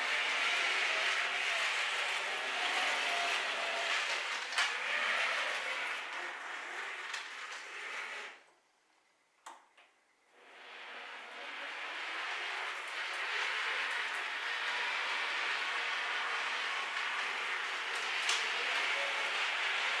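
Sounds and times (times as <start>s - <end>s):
model tram rolling on track: 0.0s - 8.4s, 10.4s - 20.0s
clicks: 9.4s - 10.0s.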